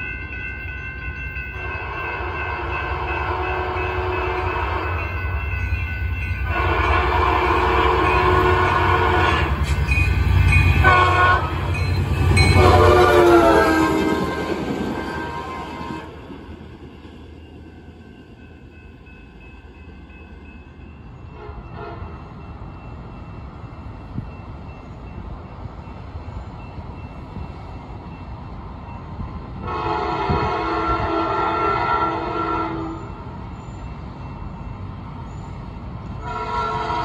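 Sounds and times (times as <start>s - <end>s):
train rumble: 0.0s - 37.0s
train horn blasts: 1.6s - 5.2s, 6.4s - 16.3s, 21.3s - 22.3s, 29.6s - 33.2s, 36.2s - 37.0s.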